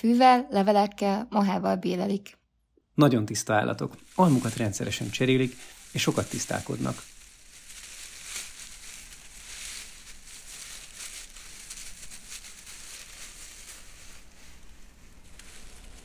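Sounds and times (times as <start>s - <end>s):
dry leaves rustling: 3.4s - 16.0s.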